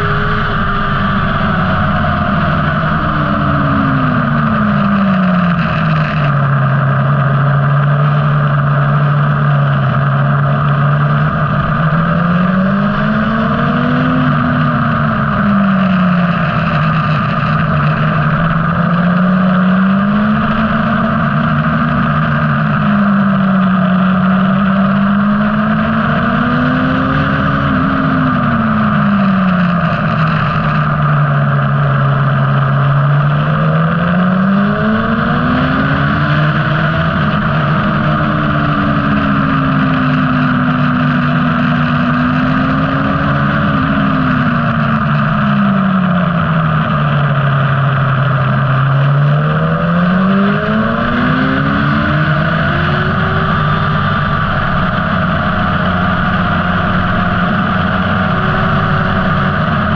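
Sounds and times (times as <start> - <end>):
motorcycle engine at speed: 0.0 - 59.9
wind rush on microphone: 0.0 - 59.9.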